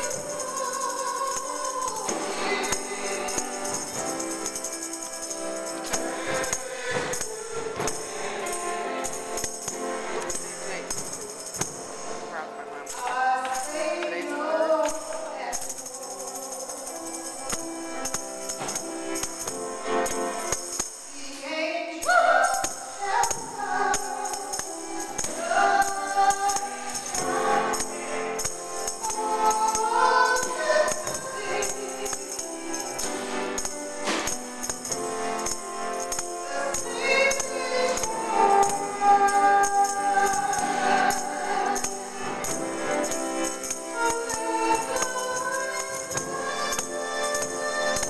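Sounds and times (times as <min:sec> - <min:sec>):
woman singing into microphone: 0:00.0 - 0:03.8, 0:05.9 - 0:08.4, 0:12.9 - 0:16.8, 0:21.1 - 0:28.2, 0:29.0 - 0:32.5, 0:36.4 - 0:42.1, 0:43.8 - 0:48.0
jingling percussion beat: 0:00.0 - 0:21.4, 0:22.0 - 0:48.0
choir singing a hymn: 0:00.0 - 0:48.0.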